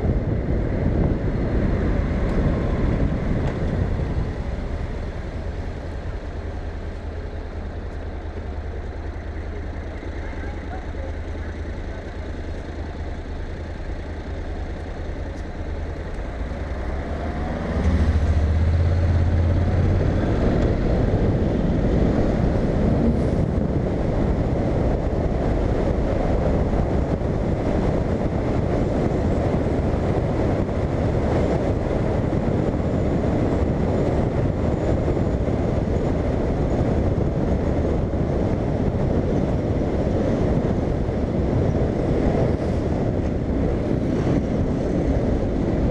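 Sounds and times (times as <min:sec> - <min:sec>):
wind noise on microphone: 0:00.0 - 0:06.5, 0:17.5 - 0:45.9
motorcycle engine: 0:00.0 - 0:45.9
road noise: 0:00.0 - 0:45.9.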